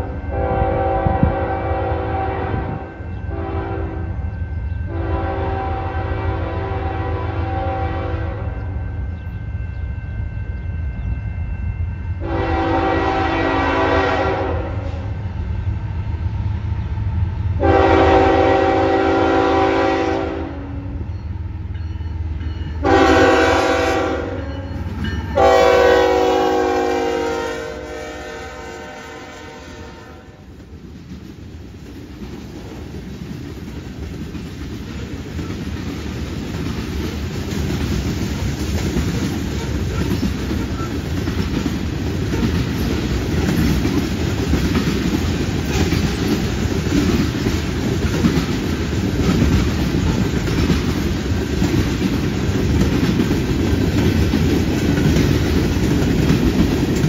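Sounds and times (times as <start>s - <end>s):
locomotive air horn: 0.0s - 4.2s, 4.9s - 8.8s, 12.2s - 15.1s, 17.6s - 21.0s, 22.8s - 24.7s, 25.4s - 30.5s
diesel locomotive rumble: 0.0s - 57.0s.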